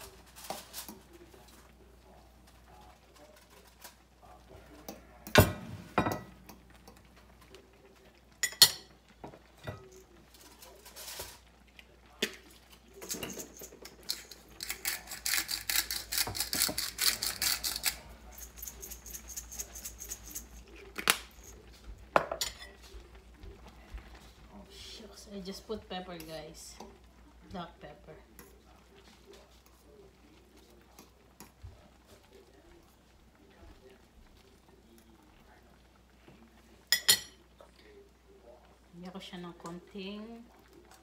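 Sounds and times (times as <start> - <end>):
metal utensil clinking on skillet: 4.8 - 7.1, 8.4 - 11.4, 12.2 - 21.6, 22.2 - 22.9, 36.9 - 37.4.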